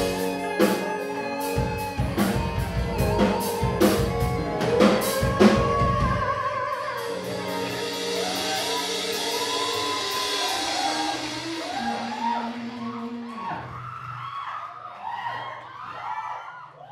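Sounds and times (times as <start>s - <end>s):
guitars and keyboard chord: 0.0s - 13.3s
person singing: 0.0s - 13.7s.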